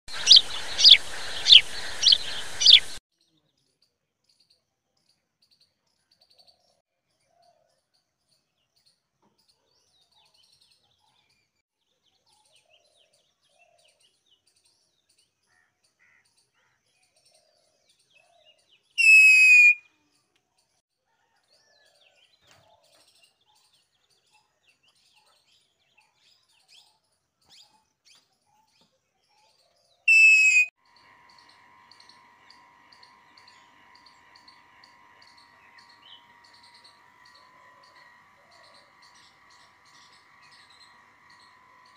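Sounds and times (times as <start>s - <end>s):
parakeet screech: 19.0s - 19.8s, 30.1s - 30.7s
sharp falling chirps: 19.0s - 19.8s, 30.1s - 30.7s.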